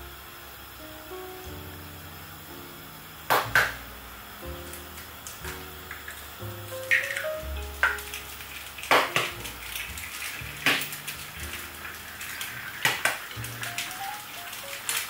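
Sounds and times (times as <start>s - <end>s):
soft background music: 0.0s - 15.0s
egg sizzling in a pan: 0.8s - 15.0s
eggshell cracking: 4.7s - 15.0s.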